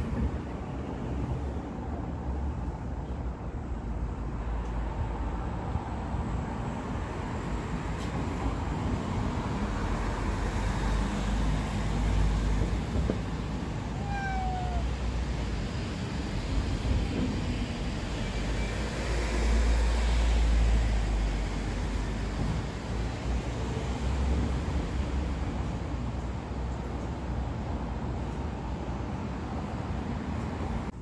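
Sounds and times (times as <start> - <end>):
cat meowing: 13.9 - 15.0.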